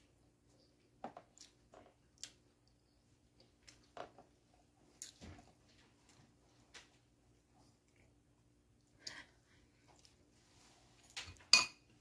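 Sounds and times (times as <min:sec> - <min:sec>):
faint room hum: 0:00.0 - 0:12.0
chewing and eating sounds: 0:01.1 - 0:04.0.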